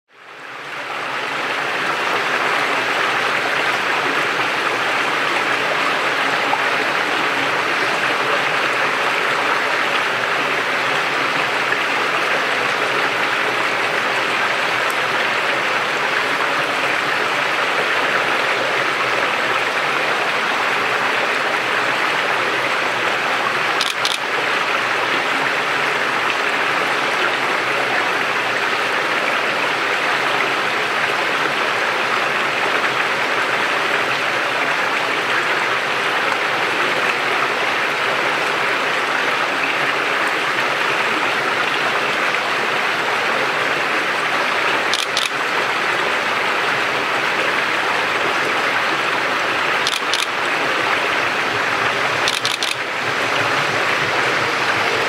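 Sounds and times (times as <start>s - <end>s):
running water rushing: 0.1s - 55.0s.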